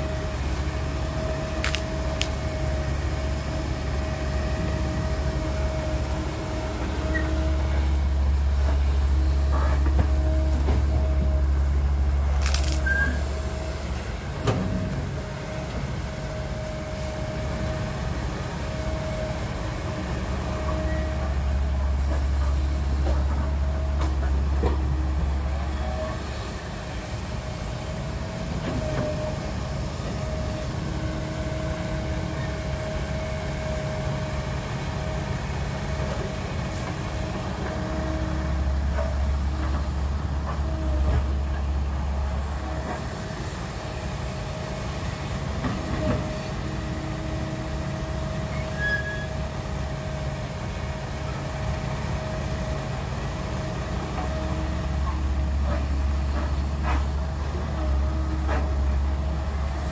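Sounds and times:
excavator diesel engine: 0.0 - 59.9
hydraulic whine: 6.7 - 15.2.

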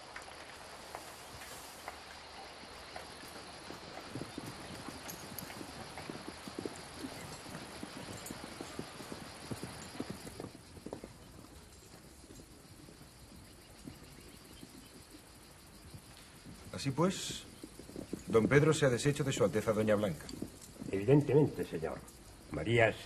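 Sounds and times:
horse hooves clip-clopping: 0.0 - 23.0
steady background hiss: 0.0 - 23.0.

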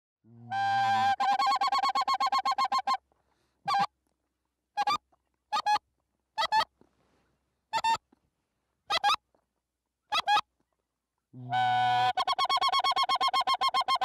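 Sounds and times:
goose honking: 0.4 - 3.0, 3.7 - 3.9, 11.4 - 14.0.

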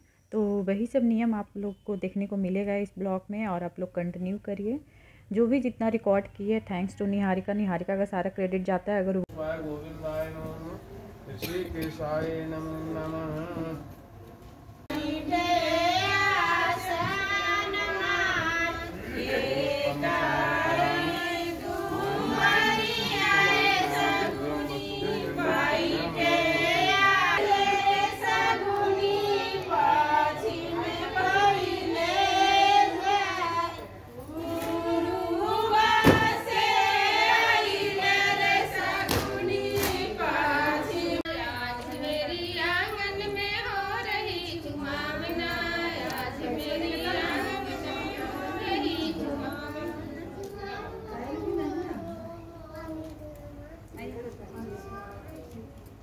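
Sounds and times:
women singing: 14.9 - 50.8
sharp knock: 36.0 - 36.3.

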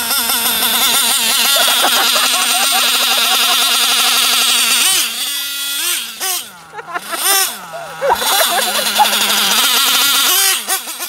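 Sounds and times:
rc car engine revving: 0.0 - 11.0.

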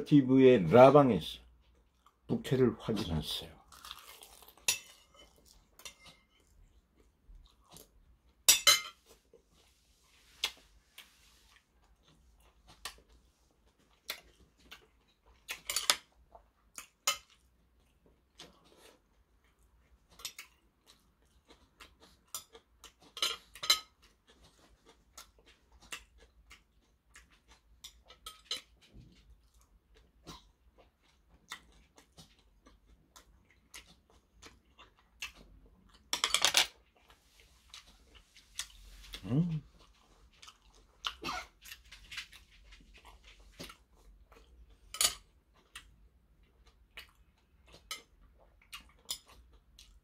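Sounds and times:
chewing: 2.9 - 50.0
metal utensils clinking on bowl: 4.6 - 6.5, 8.5 - 9.0, 23.1 - 24.0, 36.1 - 36.7, 44.9 - 45.3.

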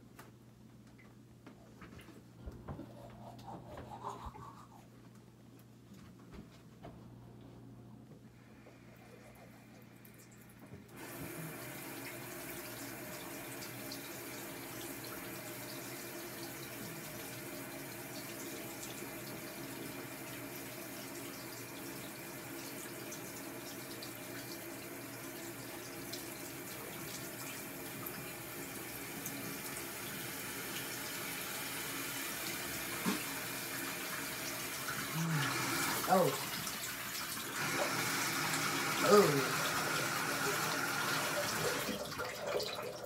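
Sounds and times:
faucet running: 10.2 - 43.0.

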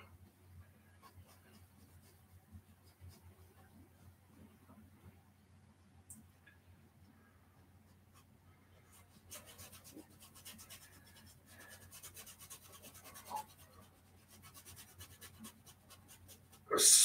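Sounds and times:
low steady hum: 0.0 - 17.0
paintbrush scratching on canvas: 0.7 - 4.2, 7.9 - 16.7.

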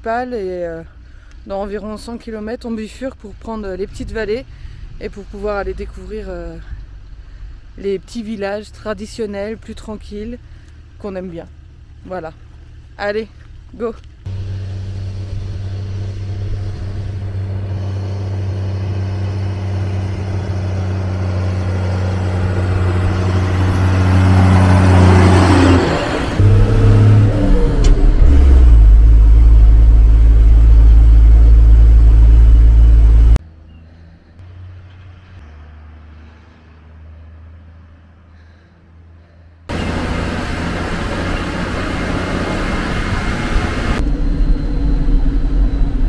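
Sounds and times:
low drone: 14.2 - 34.7, 38.3 - 46.0
diesel truck engine pulling away: 14.2 - 37.8, 39.7 - 46.0.

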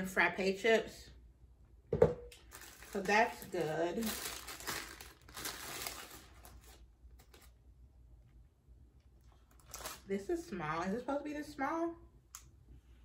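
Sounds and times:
paper bag crinkling: 2.4 - 7.5, 9.5 - 10.1.

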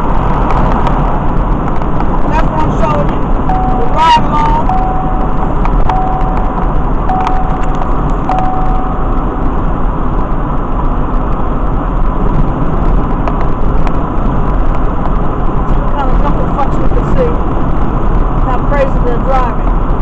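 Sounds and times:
car road and engine noise: 0.0 - 20.0
short steady tone: 3.5 - 9.5.

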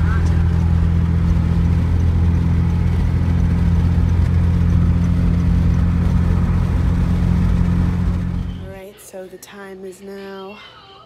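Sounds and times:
car cabin road and engine rumble: 0.0 - 8.8.

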